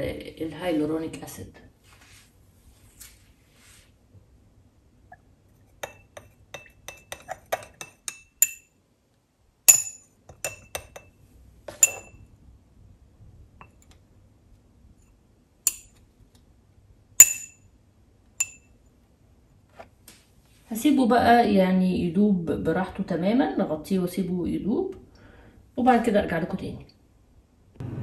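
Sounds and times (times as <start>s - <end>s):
glass rod clinking in glass beaker: 5.8s - 8.7s, 9.7s - 11.1s, 11.7s - 12.2s, 15.7s - 15.9s, 17.2s - 17.6s, 18.4s - 18.7s.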